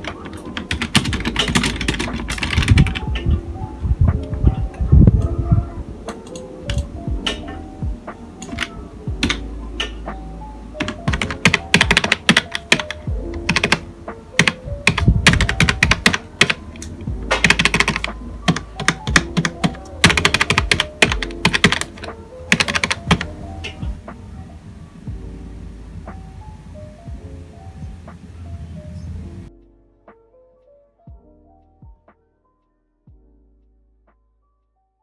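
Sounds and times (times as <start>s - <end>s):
keyboard typing clicks: 0.0s - 3.2s, 8.4s - 10.0s, 10.8s - 13.8s, 14.4s - 23.8s
soft background music: 0.0s - 35.0s.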